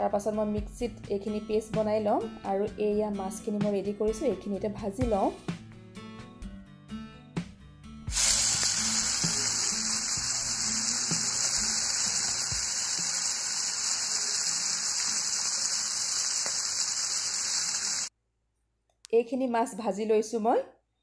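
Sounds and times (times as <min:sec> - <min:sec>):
fish sizzling in hot oil: 0:08.1 - 0:18.1.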